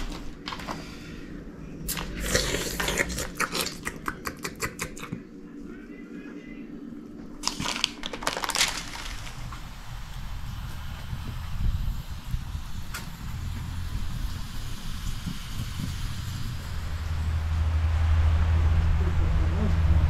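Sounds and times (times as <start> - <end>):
low steady hum: 0.0 - 20.0
aluminium foil crinkling: 7.4 - 10.0.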